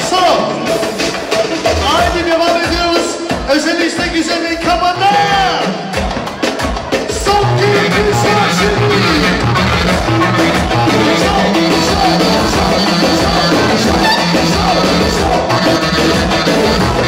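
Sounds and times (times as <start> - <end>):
music with steady beat: 0.0 - 17.0
person singing: 7.0 - 17.0.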